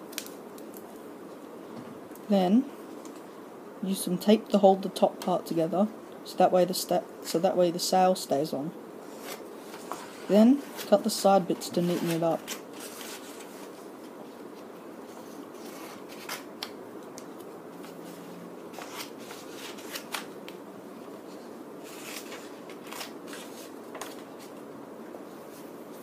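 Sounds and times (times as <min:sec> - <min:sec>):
steady background hiss: 0:00.0 - 0:26.0
paper rustling: 0:09.0 - 0:14.2, 0:15.1 - 0:20.3, 0:21.3 - 0:24.6.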